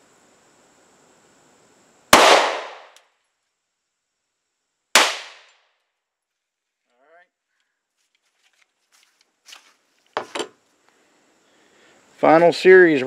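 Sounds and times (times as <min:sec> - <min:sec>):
pistol shots: 0:02.2 - 0:03.0, 0:05.0 - 0:05.5.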